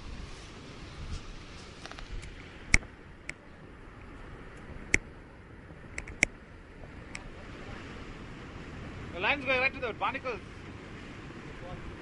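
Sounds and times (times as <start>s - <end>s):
sharp clicks: 5.9s - 6.3s.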